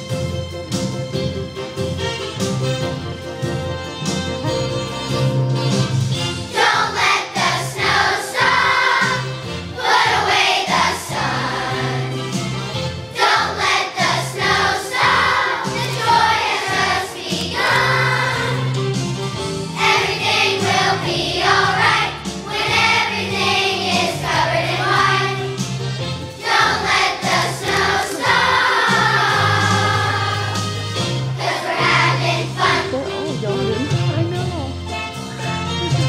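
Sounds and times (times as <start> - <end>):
children's choir singing: 6.5 - 12.4, 13.1 - 18.9, 19.7 - 25.7, 26.3 - 32.9.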